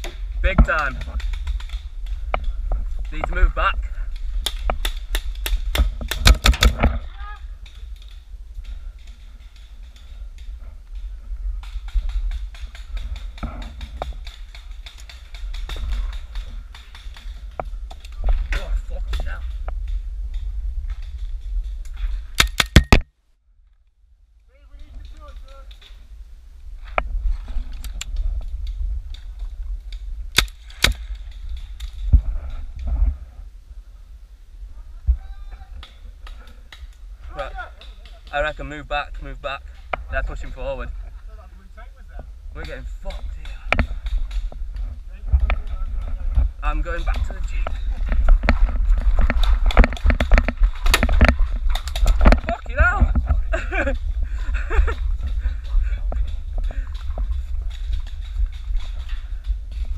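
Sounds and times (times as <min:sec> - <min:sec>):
paintball marker firing: 0:04.4 - 0:06.9, 0:22.4 - 0:23.1
low camera rumble: 0:23.4 - 0:59.9.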